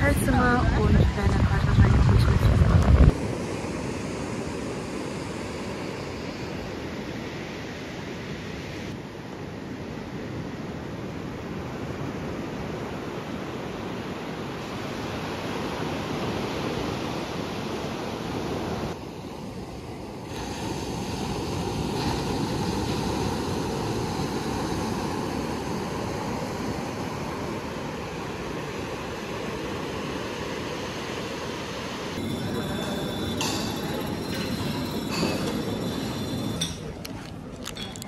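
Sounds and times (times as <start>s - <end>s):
wind on microphone: 0.0s - 5.9s
surf washing onto beach: 11.6s - 32.4s.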